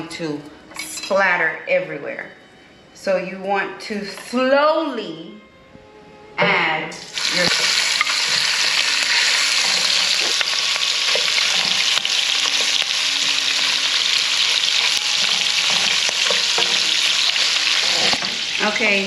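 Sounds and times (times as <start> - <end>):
sausage sizzling in a frying pan: 7.0 - 19.0
spatula scraping and tapping pan: 7.4 - 13.8, 14.4 - 19.0.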